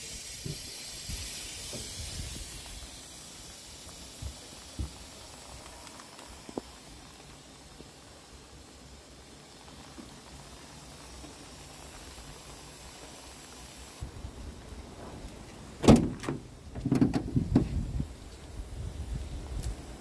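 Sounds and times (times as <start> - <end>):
locker lid slamming shut: 15.8 - 17.3.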